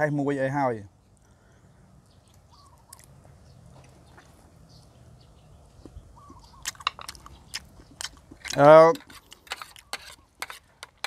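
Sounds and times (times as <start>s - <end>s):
short bird calls: 1.3s - 3.1s, 4.0s - 7.6s
sharp clicks from eating: 5.8s - 11.0s.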